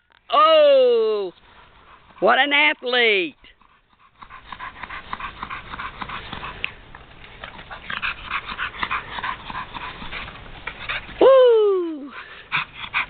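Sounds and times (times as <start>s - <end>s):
dog panting hard: 1.4s - 11.2s, 12.0s - 13.0s.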